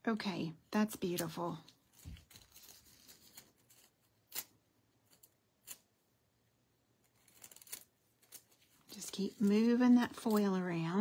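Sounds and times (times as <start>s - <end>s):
crisp foil crackles: 1.0s - 5.8s, 7.1s - 11.0s
foil rustling: 1.3s - 4.5s, 7.2s - 11.0s.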